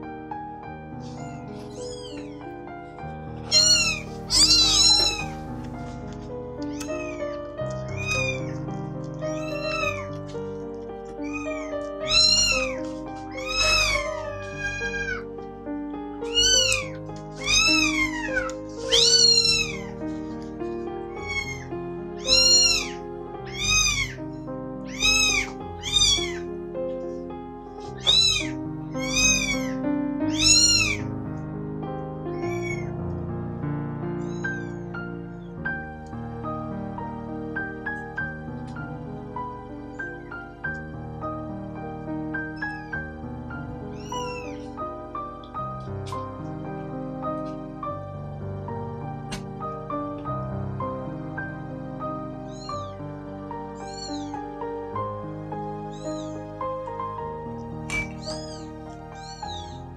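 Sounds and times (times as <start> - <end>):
background music: 0.0 - 59.9
kitten mewing: 1.0 - 2.7, 3.4 - 15.3, 16.2 - 26.5, 27.8 - 31.1, 32.3 - 32.9, 34.2 - 34.9, 43.9 - 44.8, 52.5 - 53.0, 53.8 - 54.4, 55.9 - 56.5, 57.8 - 59.9.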